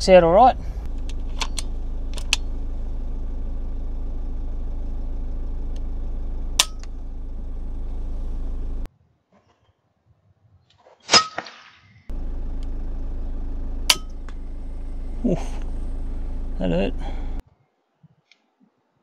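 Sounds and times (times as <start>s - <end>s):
car engine idling: 0.0s - 8.9s, 12.1s - 17.4s.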